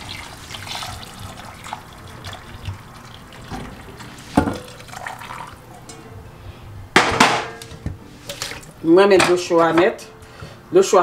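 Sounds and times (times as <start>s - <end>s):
water splashing in metal bowl: 0.0s - 6.0s, 8.2s - 8.8s.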